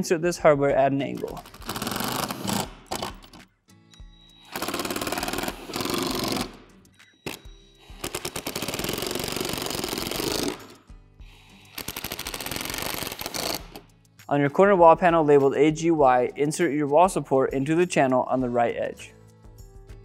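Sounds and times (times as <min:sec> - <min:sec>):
background music: 0:00.0 - 0:20.0
impact driver driving screws: 0:01.2 - 0:03.4, 0:04.5 - 0:06.6, 0:08.0 - 0:10.8, 0:11.7 - 0:13.8.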